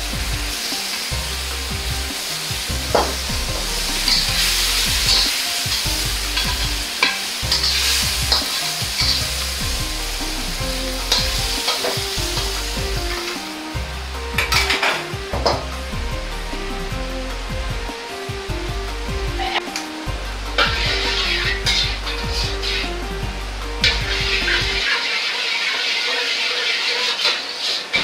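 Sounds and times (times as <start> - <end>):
tomatoes sizzling in a wok: 0.0 - 28.0
metal ladle scraping a wok: 0.5 - 15.8, 20.5 - 28.0.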